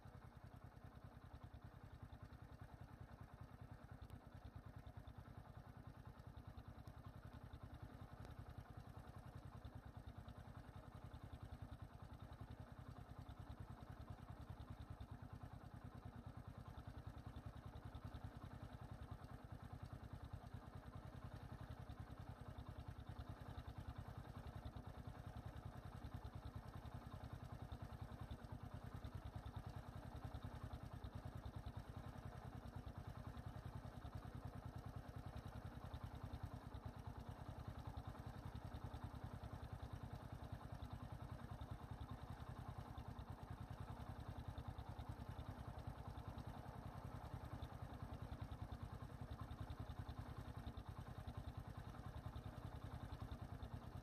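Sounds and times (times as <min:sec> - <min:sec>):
vehicle engine idling: 0:00.0 - 0:54.0.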